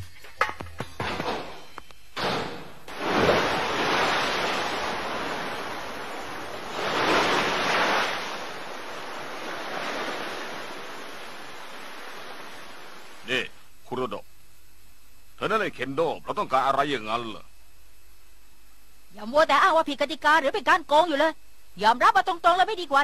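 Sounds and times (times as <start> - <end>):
rushing outdoor ambience: 2.9 - 13.6.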